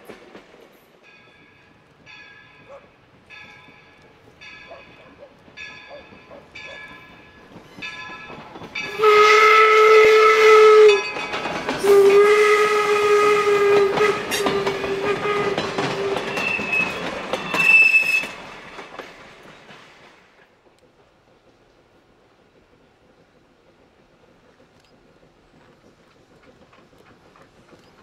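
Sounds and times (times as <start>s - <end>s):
coaches clattering over rail joints: 0.0s - 9.5s, 10.5s - 22.0s, 22.6s - 28.0s
locomotive bell ringing: 1.0s - 9.6s, 10.6s - 12.2s, 13.9s - 19.0s
steam locomotive whistle blasts: 8.8s - 11.2s, 11.8s - 18.5s.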